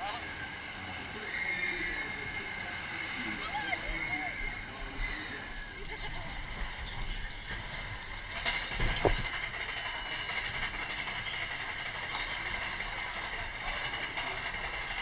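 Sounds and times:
roller coaster chain lift rattle: 0.0s - 15.0s
knock and thump: 8.8s - 9.3s.

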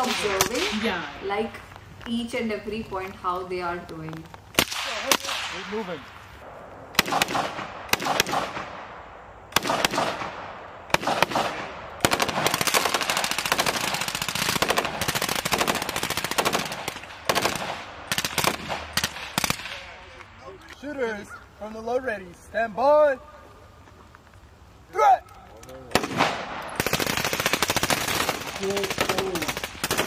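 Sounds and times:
rifle shots: 4.6s - 6.0s, 6.9s - 20.0s, 25.9s - 30.0s.

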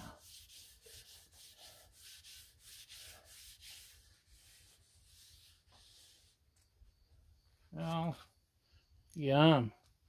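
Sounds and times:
rubbing strokes on steel griddle: 0.0s - 6.6s.

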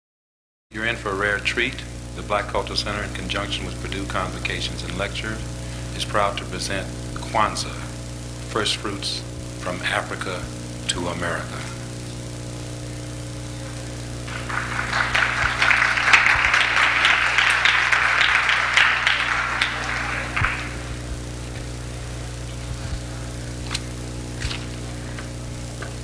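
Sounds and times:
mains hum: 0.7s - 26.0s
audience applauding: 14.2s - 21.7s.

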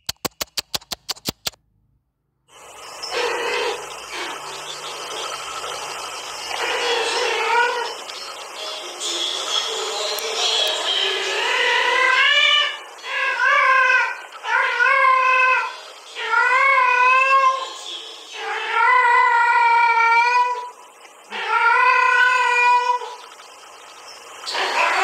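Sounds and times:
cat yowling: 11.8s - 17.8s, 18.4s - 20.7s, 21.4s - 23.2s.

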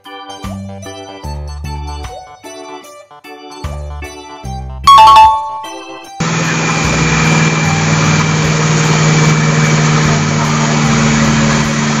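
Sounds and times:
diesel truck engine running: 6.2s - 12.0s.

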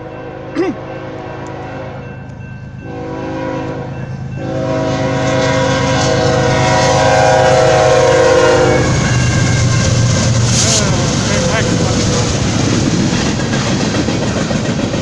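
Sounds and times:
locomotive air horn: 0.0s - 2.1s, 2.9s - 11.6s
diesel locomotive rumble: 1.2s - 15.0s.

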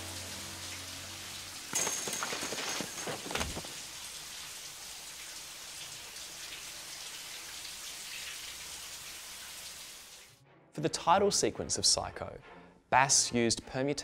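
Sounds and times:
shower spray on bathtub: 0.0s - 10.3s
thump and clatter: 1.7s - 3.8s.

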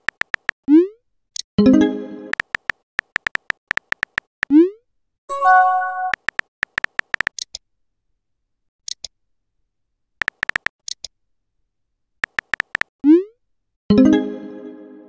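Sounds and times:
phone keyboard tap clicks: 0.0s - 0.5s, 2.4s - 4.3s, 6.1s - 7.4s, 10.2s - 11.0s, 12.2s - 12.9s
rising chat tone: 5.3s - 6.2s.

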